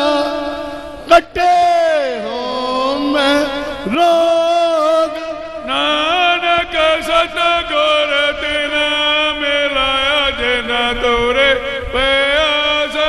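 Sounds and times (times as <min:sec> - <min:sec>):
man singing long notes: 0:00.0 - 0:13.0.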